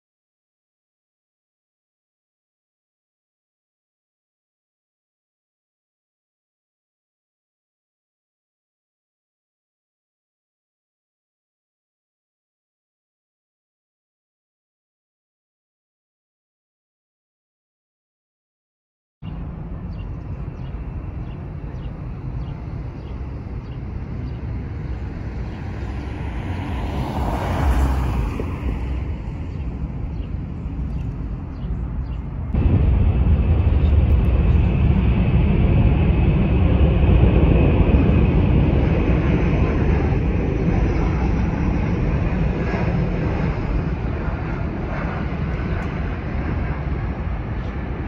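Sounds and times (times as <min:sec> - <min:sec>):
jet engines rumbling: 0:19.2 - 0:48.0.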